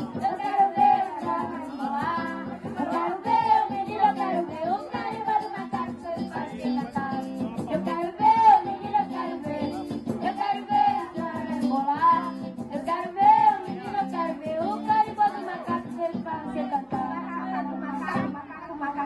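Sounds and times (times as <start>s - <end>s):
children singing: 0.0s - 6.7s
maracas shaking: 0.0s - 17.2s
hand drum: 0.0s - 17.3s, 17.9s - 18.4s
guitar: 0.0s - 19.0s.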